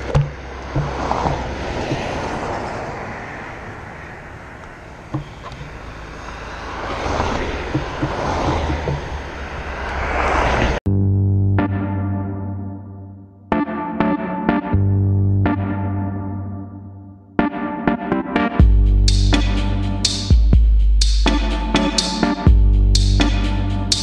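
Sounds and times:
cars passing: 0.0 - 10.8
tyre and road rumble: 0.0 - 10.8
wind rushing over camera: 0.0 - 10.8
synth piano music: 11.0 - 20.1, 21.3 - 22.6.

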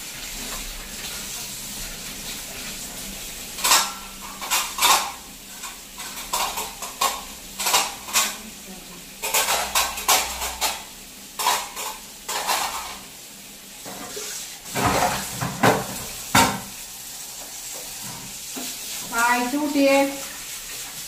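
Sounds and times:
tap water running: 0.0 - 21.0
dishes clattering in a rack: 3.6 - 8.4, 9.2 - 13.0, 13.8 - 16.8
pot clanking: 3.6 - 8.4, 9.2 - 13.0, 13.9 - 16.8.

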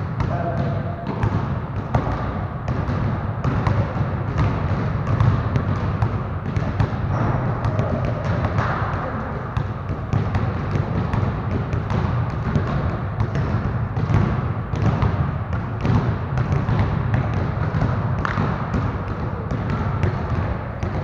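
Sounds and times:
basketballs bouncing on gym floor: 0.0 - 21.0.

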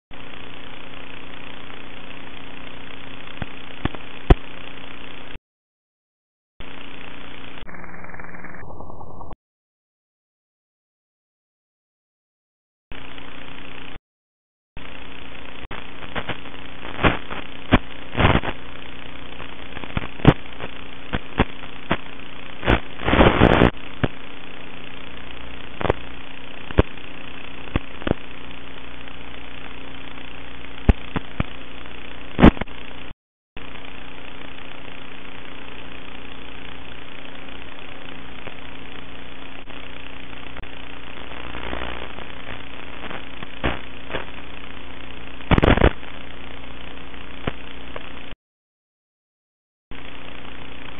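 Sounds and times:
static crackles and pops: 0.1 - 5.4, 6.6 - 9.4, 12.9 - 14.0, 14.8 - 48.4, 49.9 - 50.9
electrical hum and hiss: 14.8 - 48.4.

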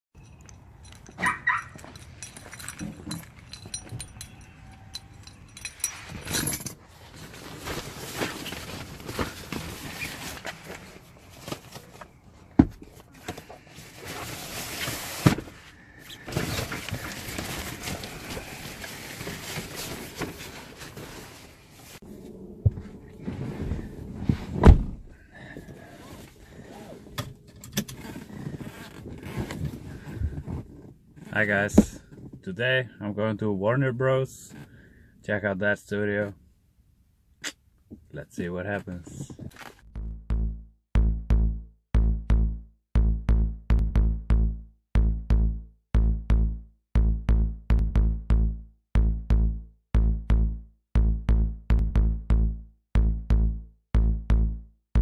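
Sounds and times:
keys jangling: 0.2 - 6.8
footsteps: 17.0 - 24.6
car door thumps: 24.6 - 25.1
seatbelt being pulled: 27.8 - 31.0.

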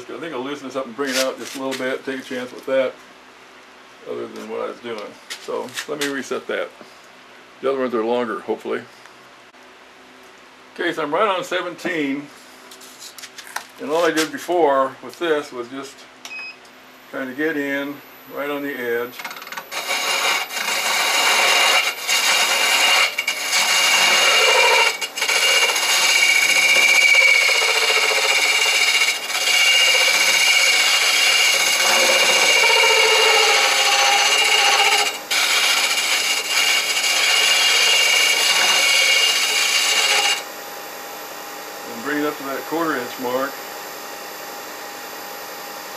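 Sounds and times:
lathe tool scraping wood: 18.8 - 40.5.

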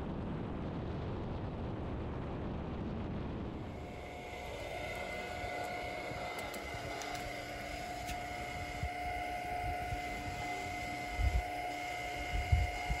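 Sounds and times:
low rumble: 0.0 - 11.6
fuel flowing through nozzle: 2.6 - 13.0
fuel pump whining: 3.6 - 13.0.

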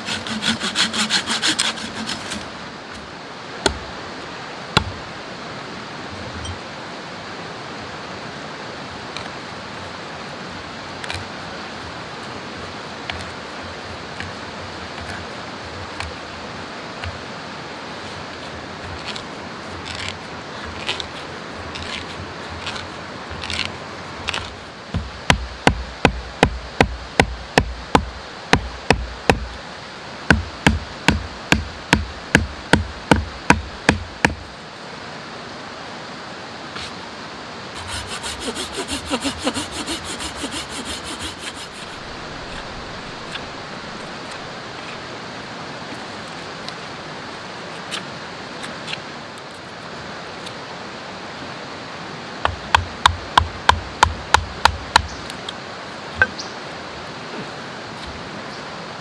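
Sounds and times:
wood rasping and scraping: 0.0 - 2.6, 18.0 - 25.1, 37.8 - 44.5
stream rushing: 0.0 - 59.0
hammer blows on wood: 37.8 - 42.0.

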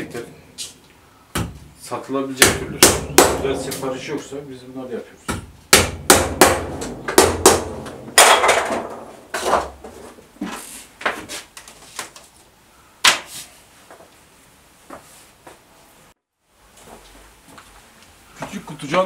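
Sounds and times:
hammer blows on wood: 2.4 - 3.8.

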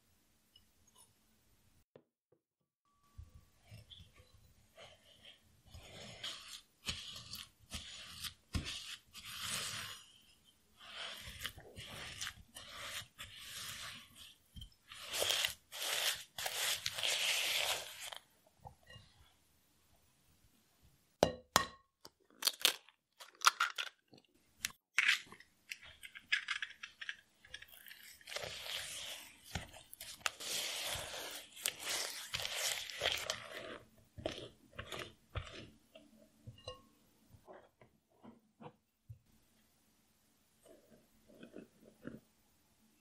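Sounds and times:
wet mixing in bowl: 27.5 - 36.7.

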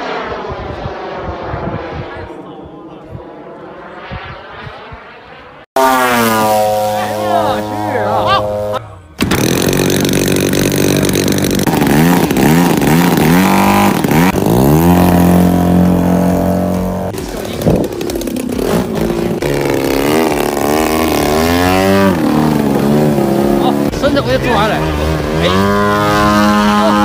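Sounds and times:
model airplane engine running hard: 5.8 - 27.0.

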